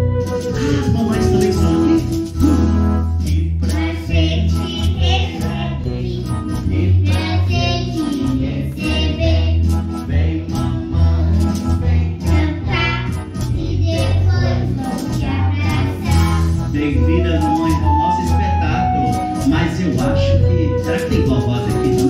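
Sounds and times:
bass line: 0.0s - 22.0s
voices singing: 3.3s - 20.3s.

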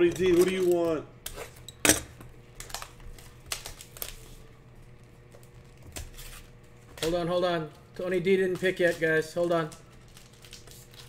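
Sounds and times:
foil wrappers crinkling: 0.0s - 1.7s, 2.4s - 11.0s.

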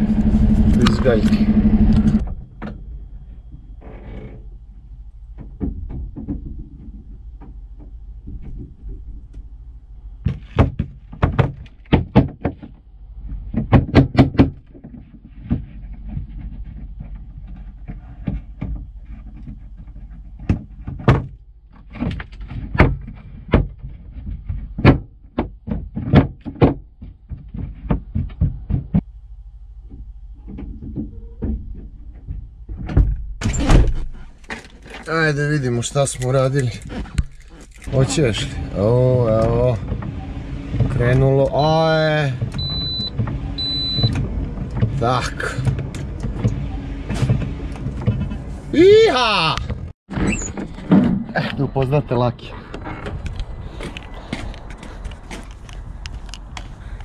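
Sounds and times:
engine idling hum: 0.0s - 11.9s, 29.0s - 33.4s, 34.0s - 48.8s.

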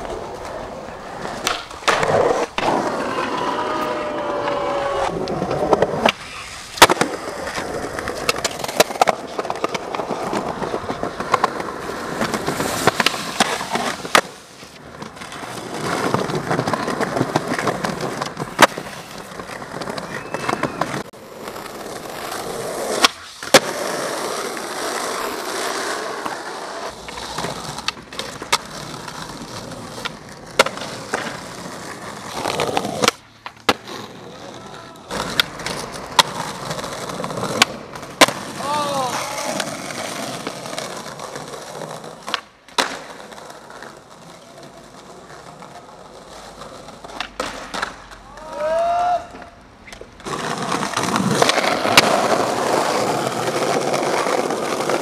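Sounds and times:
skateboard cracking and landing: 0.0s - 48.6s, 49.2s - 55.0s
skateboard wheels rolling on concrete: 0.0s - 55.0s.

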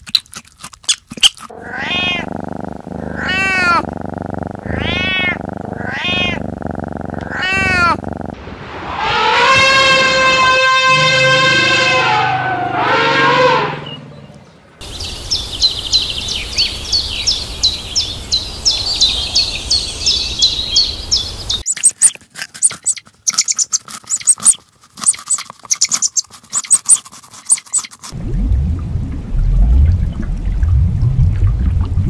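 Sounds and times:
porcupines chewing fruit: 0.0s - 1.6s, 21.6s - 28.2s
elephant trumpeting: 8.8s - 14.1s
rain-like noise: 28.2s - 32.0s.

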